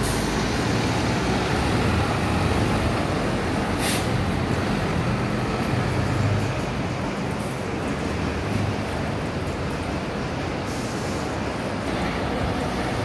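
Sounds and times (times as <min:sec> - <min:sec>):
bus diesel engine driving past: 0:00.0 - 0:13.0
air hiss burst: 0:03.8 - 0:04.2.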